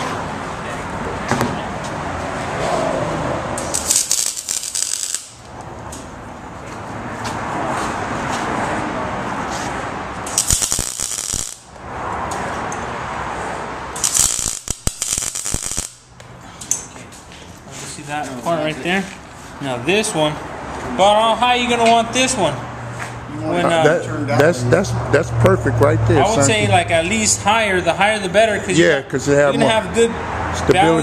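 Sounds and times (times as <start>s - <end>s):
welding arc crackling: 3.6s - 5.6s, 10.2s - 11.8s, 13.9s - 16.1s.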